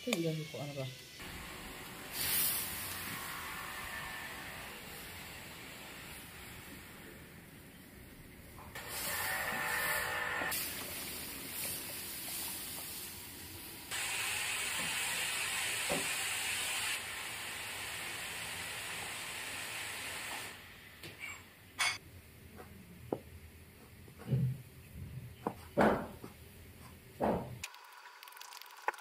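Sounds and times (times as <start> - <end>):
steam hissing from wok: 0.3 - 7.5, 8.8 - 20.9.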